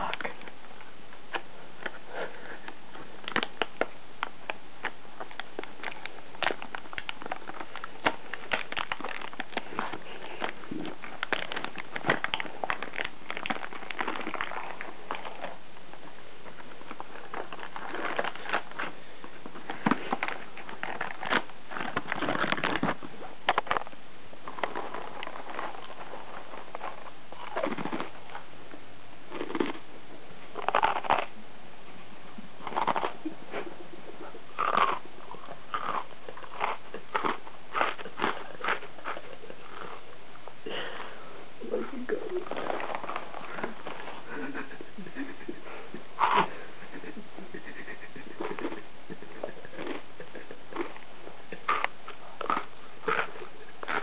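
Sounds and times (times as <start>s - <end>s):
cereal crunching: 29.3s - 29.9s, 30.6s - 31.4s, 32.6s - 33.7s, 34.6s - 40.0s, 49.6s - 54.0s.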